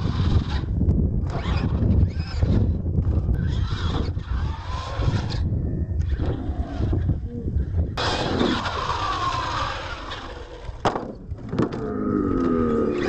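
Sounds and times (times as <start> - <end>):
toy truck motors revving: 0.0 - 7.2, 8.0 - 10.8
wind on microphone: 0.0 - 13.0.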